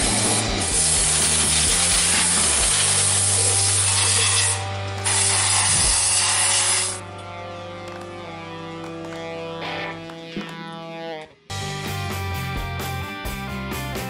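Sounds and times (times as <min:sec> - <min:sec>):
guitar music: 0:00.0 - 0:14.0
aerosol spray hissing: 0:05.0 - 0:07.0.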